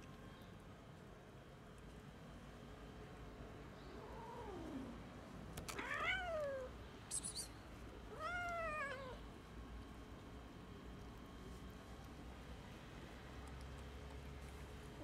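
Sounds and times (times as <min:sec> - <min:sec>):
cat meowing: 0:05.7 - 0:06.7, 0:08.1 - 0:09.2.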